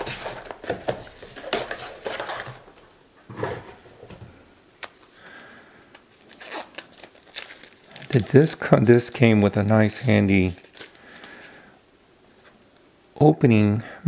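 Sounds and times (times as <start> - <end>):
cardboard and paper rustling: 0.0 - 3.9, 6.1 - 11.6.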